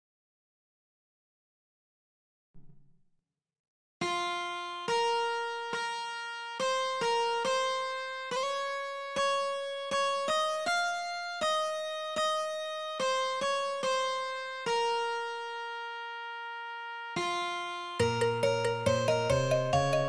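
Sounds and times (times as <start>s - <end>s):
slow melody of single notes: 4.0s - 20.0s.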